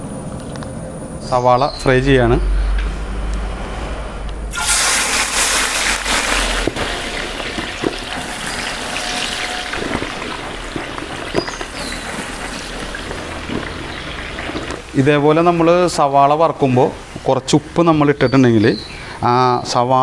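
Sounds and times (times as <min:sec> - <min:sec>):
oil popping: 0:04.5 - 0:16.0
onions sizzling in hot oil: 0:04.5 - 0:16.0.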